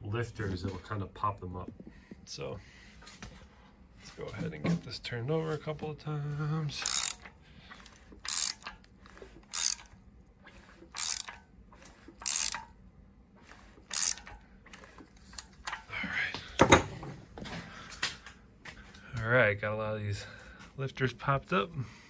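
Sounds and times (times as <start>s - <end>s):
socket ratchet clicking: 6.8s - 10.0s, 10.9s - 12.7s, 13.8s - 15.8s
metal tool set down on workbench: 16.6s - 17.2s.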